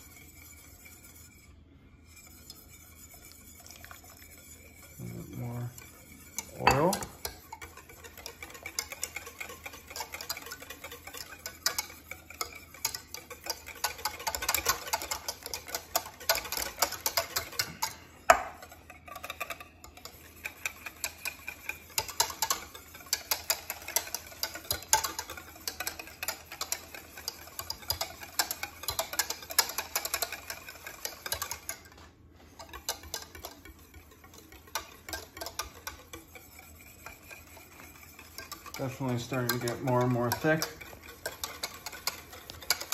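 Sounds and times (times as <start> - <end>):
whisk ticking against metal pan: 0.0 - 42.9.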